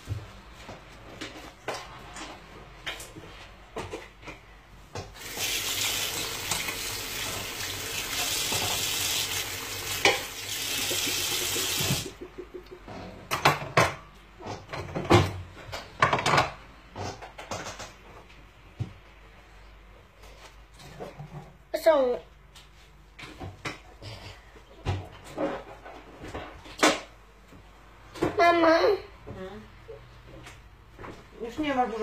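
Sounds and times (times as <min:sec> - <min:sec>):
tap running into sink: 0:05.1 - 0:12.1.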